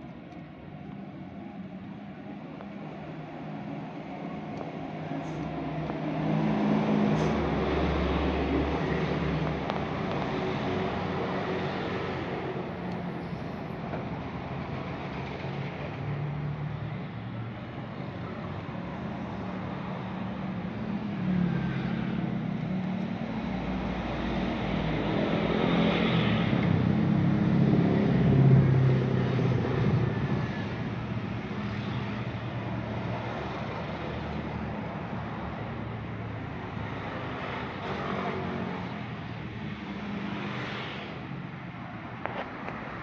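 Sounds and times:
traffic hum: 0.0 - 43.0.

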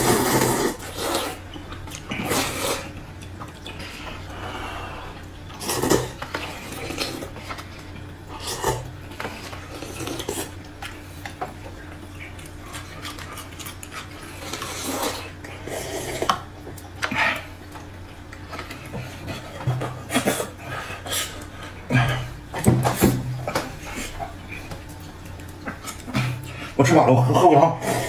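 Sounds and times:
slurping noodle soup: 0.0 - 11.3, 12.2 - 17.6, 27.8 - 28.0.

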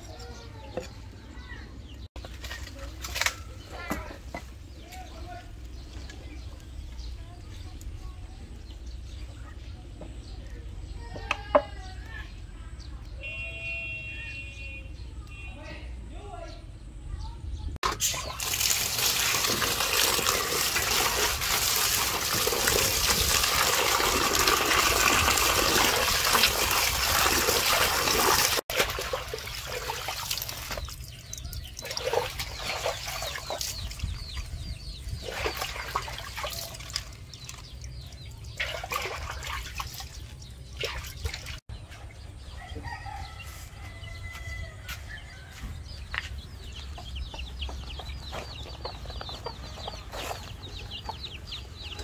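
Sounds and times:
wet leaves rustling and squeaking: 2.2 - 4.4, 17.8 - 41.6
water pouring into metal bowl: 17.8 - 33.8
chickens clucking: 41.8 - 52.0
rooster crowing: 42.5 - 45.7.

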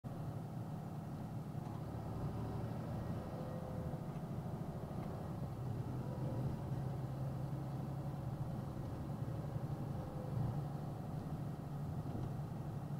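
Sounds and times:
truck engine and road hum: 0.0 - 12.9.

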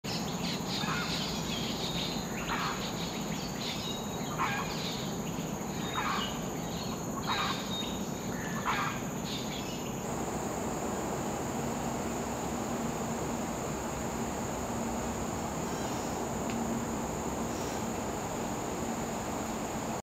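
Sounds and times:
high insect drone: 0.1 - 20.0
low background noise: 0.1 - 20.0
bird calling: 4.2 - 20.0.

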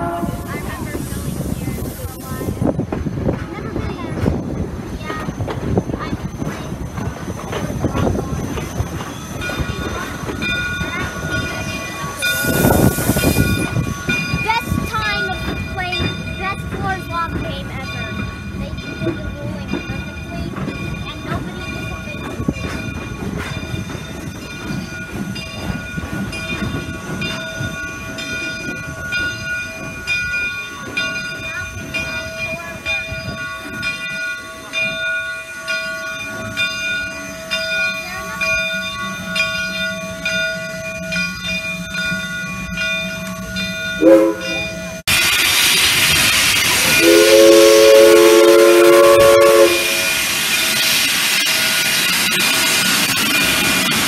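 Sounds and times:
steam locomotive whistle: 0.0 - 0.6, 44.0 - 44.7, 46.8 - 50.3
steam train rumbling: 0.0 - 54.0
steam hissing: 0.1 - 3.3, 4.3 - 17.5, 44.0 - 54.0.

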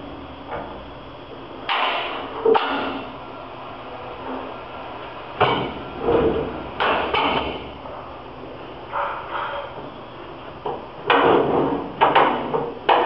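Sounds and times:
metal panels knocking and clunking: 10.6 - 13.0.

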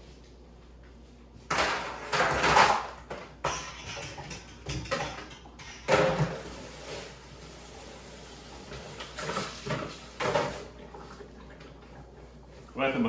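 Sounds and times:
kitchenware clattering on counter: 1.5 - 6.4.

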